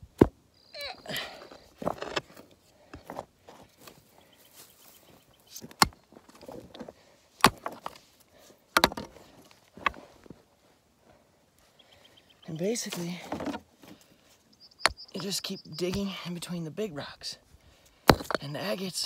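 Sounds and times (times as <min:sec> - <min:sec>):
dirt and rock scraping: 0:00.0 - 0:11.2, 0:12.4 - 0:19.0
digging tool striking rocky soil: 0:01.5 - 0:02.4, 0:05.5 - 0:08.0, 0:08.8 - 0:09.2, 0:14.8 - 0:16.1, 0:18.0 - 0:18.7.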